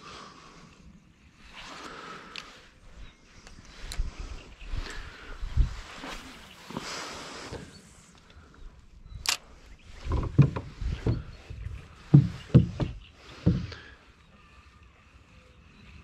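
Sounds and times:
sharp click: 9.2s - 9.5s
boat thumps and splashes: 10.0s - 13.9s.

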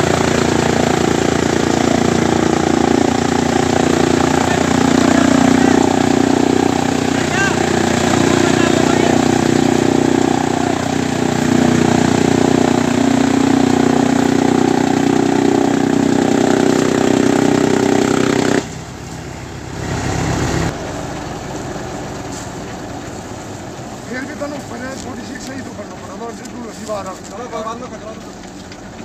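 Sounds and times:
fodder chopper drone and whir: 0.0s - 22.2s
engine and machine hum: 0.0s - 29.0s.

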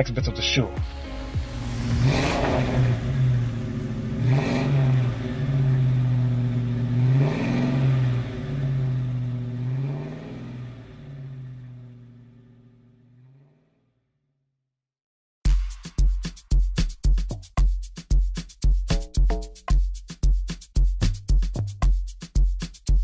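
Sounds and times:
car engine revving: 0.8s - 13.6s.

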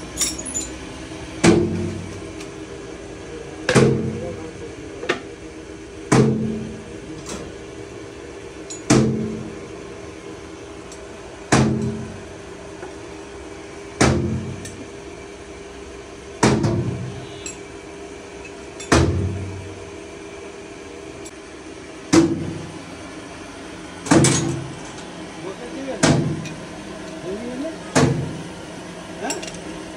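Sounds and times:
steady hum: 0.0s - 29.9s.

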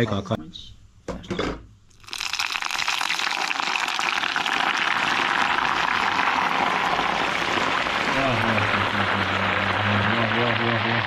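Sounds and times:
hot oil sizzling and crackling: 1.9s - 11.0s.

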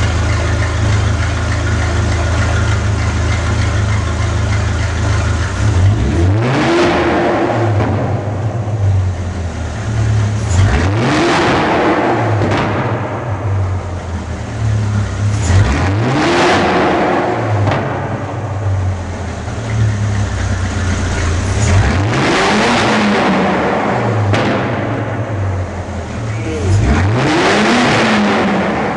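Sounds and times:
car engine revving: 0.0s - 28.9s.

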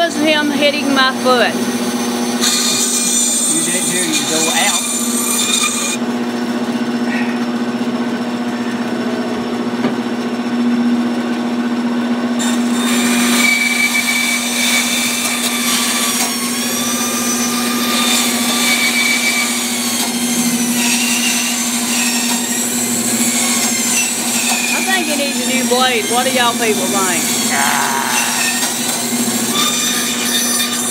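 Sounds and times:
bandsaw motor hum: 0.0s - 30.9s
bandsaw blade whining in wood: 1.6s - 6.0s, 12.4s - 30.9s.

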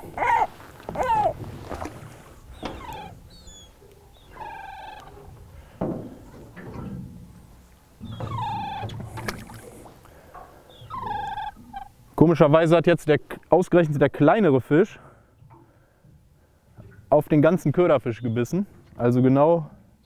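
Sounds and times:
gulls mewing calls: 0.0s - 6.4s, 8.0s - 12.0s
thump: 5.8s - 7.2s.

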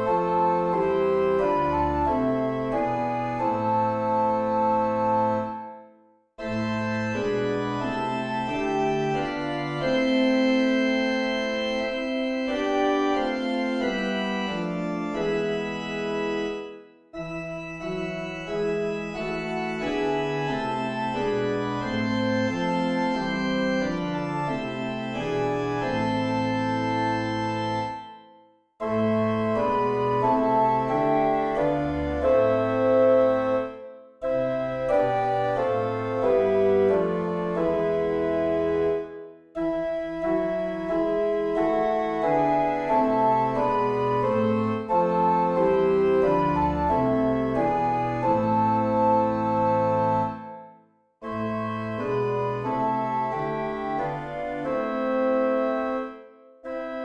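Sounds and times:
organ playing hymn chords: 0.0s - 57.0s.

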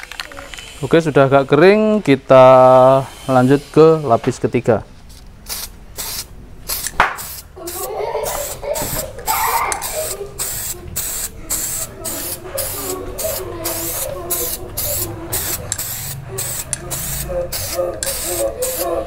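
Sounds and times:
aerosol can spraying bursts: 5.5s - 19.0s.

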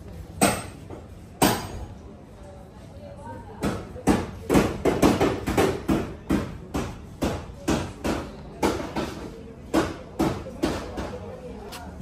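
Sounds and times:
hammer striking sheet metal: 1.4s - 1.8s.

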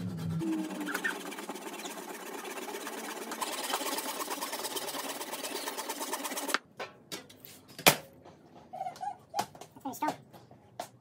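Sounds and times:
handsaw rasping through wood: 0.0s - 6.6s.

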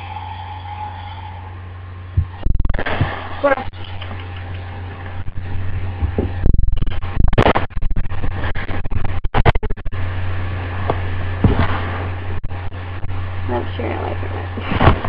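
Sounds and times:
steady low hum: 0.0s - 15.0s
microphone handling noise: 2.2s - 13.4s, 14.6s - 15.0s.

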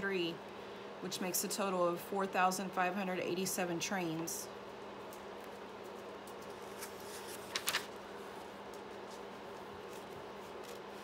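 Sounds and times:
steady low hum: 0.0s - 11.0s
paper page rustling: 5.4s - 11.0s.

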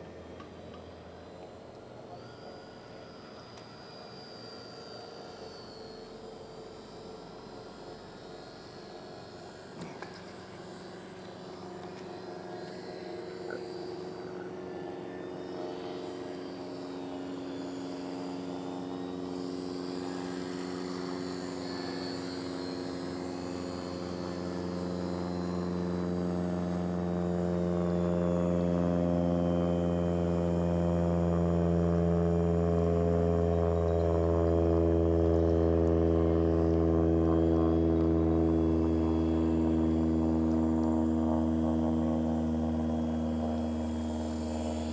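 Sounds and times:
model airplane motor buzzing: 0.0s - 44.9s.

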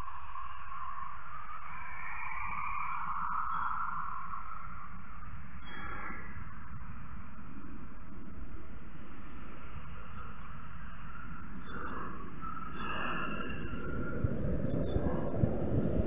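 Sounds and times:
high insect drone: 0.0s - 16.0s
bird calls: 3.3s - 4.2s, 10.1s - 15.6s.

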